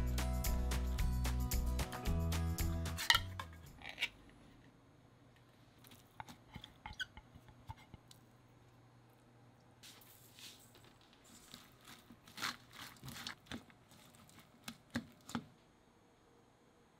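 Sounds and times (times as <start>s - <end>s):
background music: 0.0s - 3.8s.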